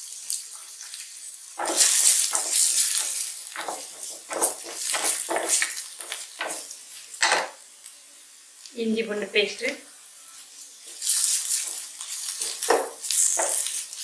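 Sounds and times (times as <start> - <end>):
onions sizzling in hot oil: 0.0 - 14.0
wooden spatula scraping pan: 1.6 - 7.5, 11.0 - 14.0.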